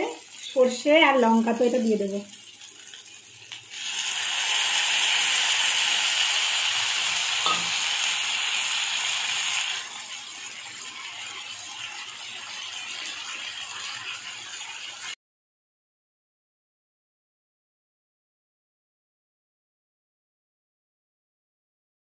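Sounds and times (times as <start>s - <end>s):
paste sizzling in hot oil: 0.0s - 15.2s.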